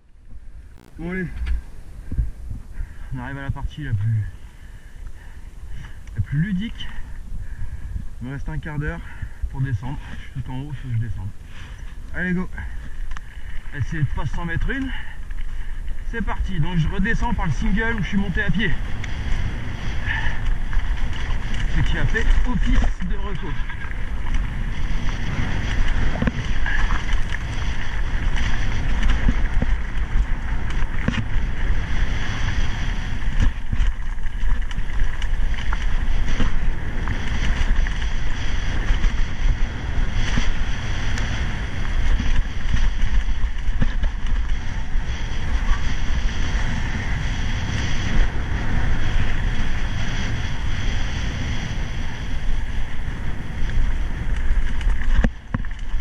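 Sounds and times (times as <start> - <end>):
bike rattling: 0.0 - 56.0
wind buffeting microphone: 0.0 - 56.0
tyres crunching over stones: 11.8 - 45.2.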